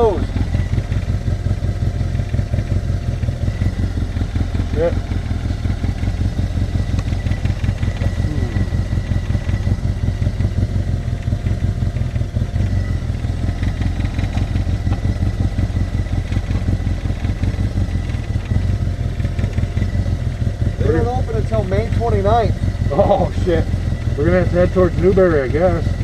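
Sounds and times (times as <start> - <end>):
utility vehicle engine idling: 0.0 - 26.0.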